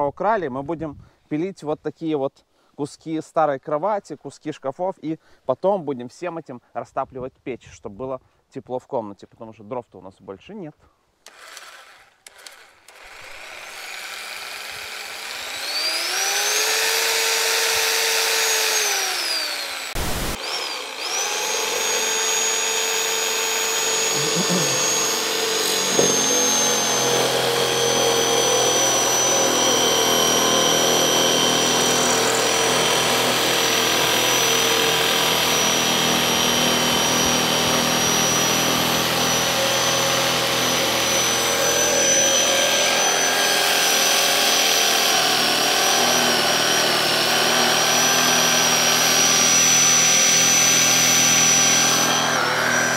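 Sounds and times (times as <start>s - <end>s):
electric power saw whining: 11.3s - 52.9s.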